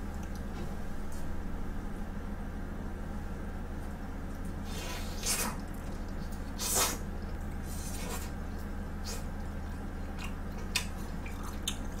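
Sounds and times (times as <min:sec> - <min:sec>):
steady low hum: 0:00.0 - 0:12.0
close chewing with mouth clicks: 0:05.1 - 0:12.0.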